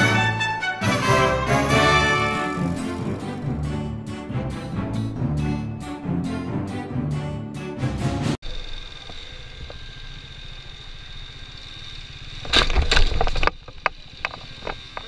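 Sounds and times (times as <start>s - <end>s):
motorcycle engine rumbling: 8.4s - 15.0s.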